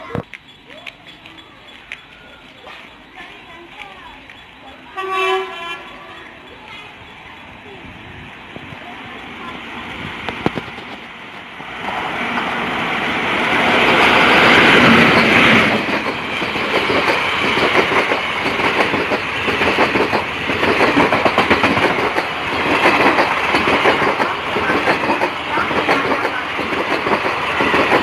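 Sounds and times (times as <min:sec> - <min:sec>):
electric locomotive rushing past: 0:00.5 - 0:28.0
train wheels clacking over rail joints: 0:13.6 - 0:28.0.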